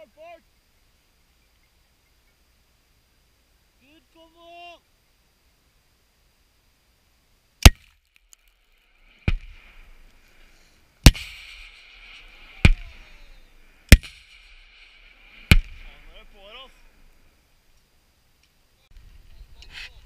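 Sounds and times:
rolling gunshot echo: 9.2 - 9.8, 11.0 - 13.2, 13.9 - 16.3
rifle gunshots: 9.2 - 10.0, 11.0 - 16.3.

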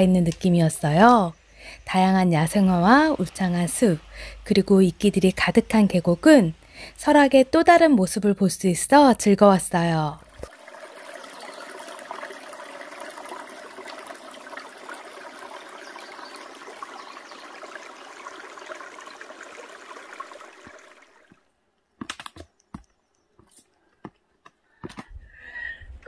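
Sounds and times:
stream babbling over rocks: 10.2 - 21.4.

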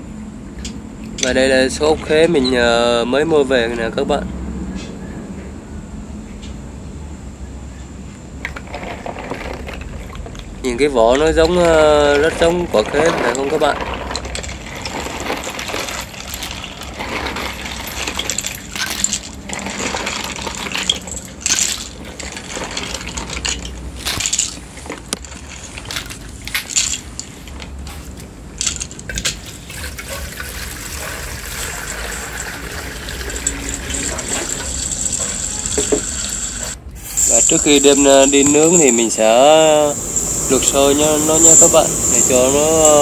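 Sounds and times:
snail shells clattering: 11.1 - 43.0
water pouring into metal wok: 30.0 - 35.8.

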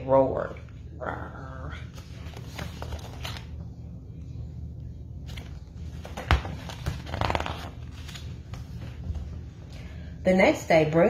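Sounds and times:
steady low hum: 0.0 - 11.0
page turning rustle: 2.0 - 3.6, 5.2 - 9.0.

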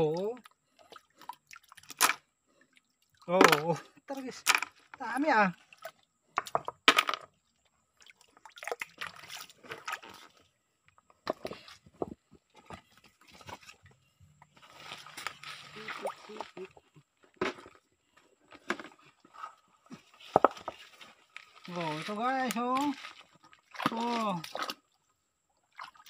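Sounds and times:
sharp knocks on stones: 20.3 - 20.8.

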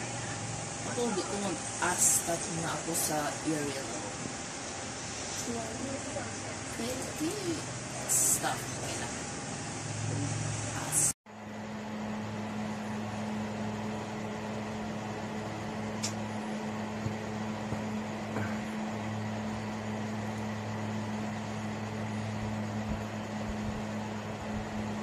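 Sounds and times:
fan air rushing: 0.0 - 25.0
low motor hum: 0.0 - 25.0
light click: 16.0 - 16.2.

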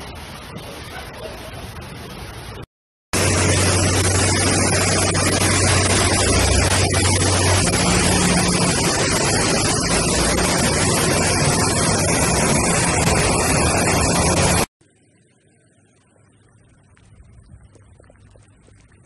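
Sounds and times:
loud rushing noise: 3.2 - 14.7.

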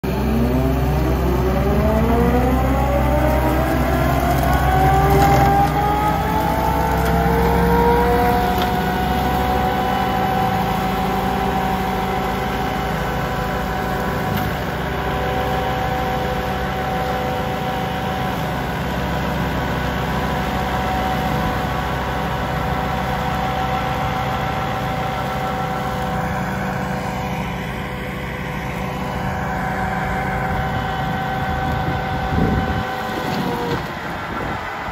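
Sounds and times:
diesel engine running under load: 0.0 - 34.9
mulcher rotor whine: 20.8 - 34.9.

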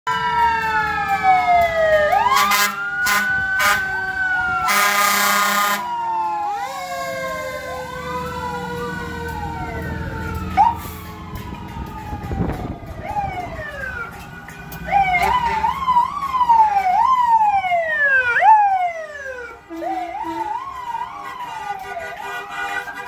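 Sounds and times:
emergency vehicle sirens: 0.0 - 23.0
horn blasts: 2.2 - 4.0, 4.6 - 6.0, 19.6 - 23.0.

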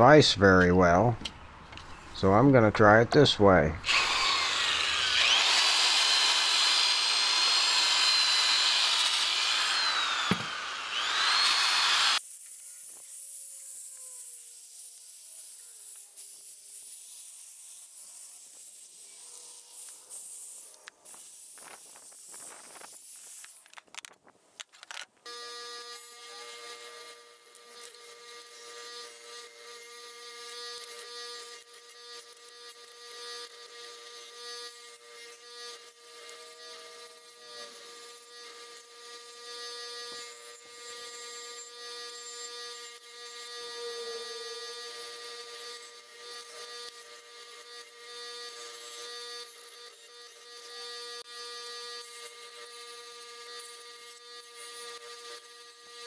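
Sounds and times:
high-pitched motor whine: 3.8 - 12.2, 25.3 - 56.0.

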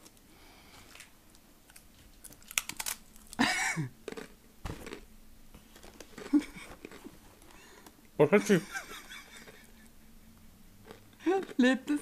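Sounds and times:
person chewing crunchy food: 0.8 - 8.0, 10.8 - 11.6.

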